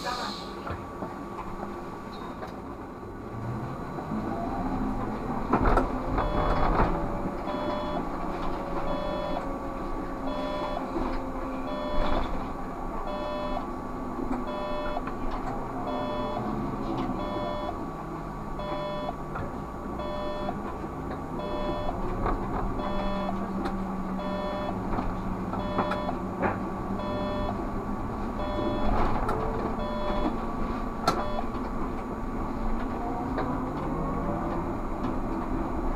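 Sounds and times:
trolleybus electric whine: 0:00.0 - 0:35.9
electronic beeper beeping: 0:07.5 - 0:08.0, 0:08.9 - 0:09.4, 0:10.3 - 0:10.9, 0:11.7 - 0:12.2, 0:13.1 - 0:13.6, 0:14.5 - 0:15.0, 0:15.9 - 0:16.4, 0:17.2 - 0:17.8, 0:18.6 - 0:19.2, 0:20.0 - 0:20.6, 0:21.4 - 0:22.0, 0:22.8 - 0:23.4, 0:24.2 - 0:24.8, 0:25.6 - 0:26.2, 0:27.0 - 0:27.6, 0:28.4 - 0:29.0, 0:29.8 - 0:30.3, 0:31.2 - 0:31.5.

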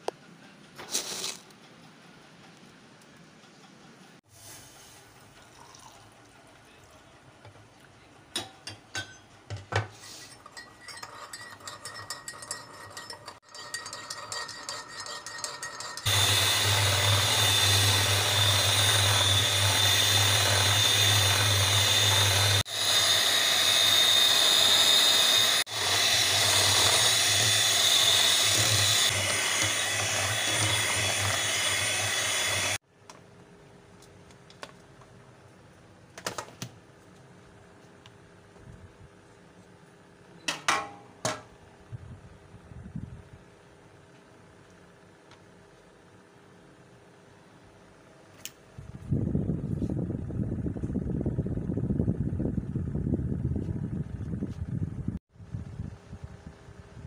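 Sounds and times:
spoon clinking in a bowl: 0:10.2 - 0:16.1
electric mixer beating batter: 0:15.7 - 0:32.8.

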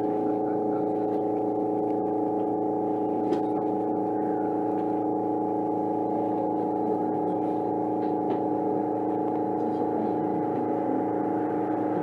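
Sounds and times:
monorail train humming: 0:06.1 - 0:12.0.

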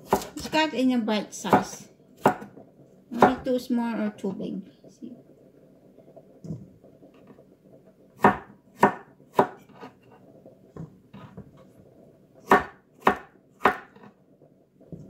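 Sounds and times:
knife chopping on wooden board: 0:00.0 - 0:00.4, 0:01.5 - 0:02.5, 0:08.2 - 0:09.6, 0:12.5 - 0:14.0.

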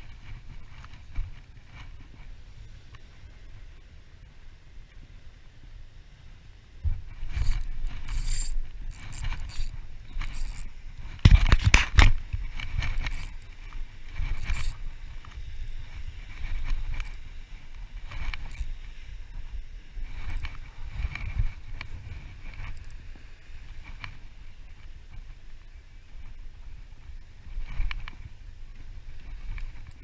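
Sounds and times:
wind rumble on microphone: 0:00.0 - 0:30.0
clothing and gear rustling: 0:06.9 - 0:25.4.

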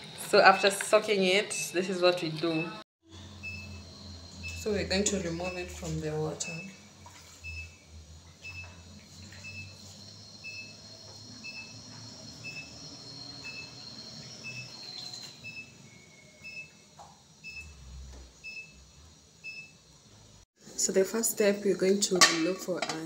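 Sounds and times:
faint high beep: 0:02.5 - 0:07.8, 0:09.4 - 0:10.8, 0:11.4 - 0:11.8.

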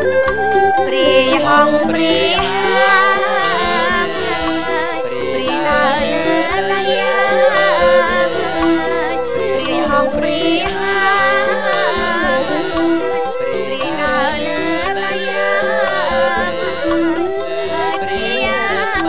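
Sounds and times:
bamboo flute: 0:00.0 - 0:19.0
hammered dulcimer: 0:00.0 - 0:19.0
person singing ornamented melody: 0:00.0 - 0:19.0.

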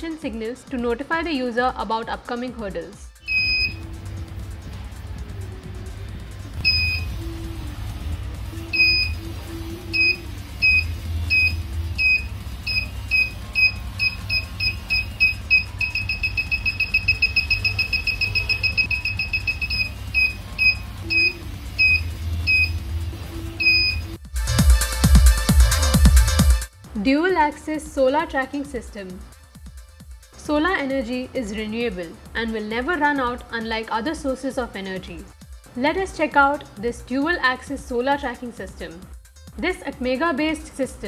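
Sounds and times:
high-pitched buzzer beeping: 0:03.2 - 0:04.0, 0:06.6 - 0:07.3, 0:08.6 - 0:24.2.

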